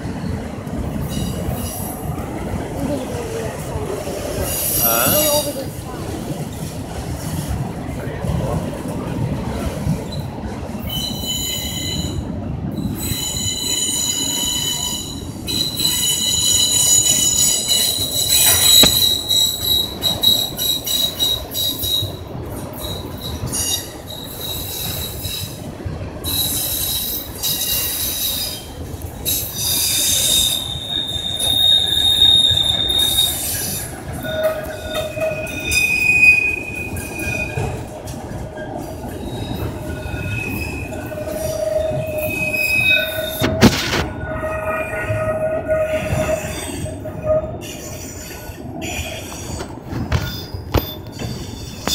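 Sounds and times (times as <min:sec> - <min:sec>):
wheels rumbling on rail: 0:00.0 - 0:51.9
train wheels squealing: 0:10.1 - 0:37.9, 0:38.6 - 0:51.9.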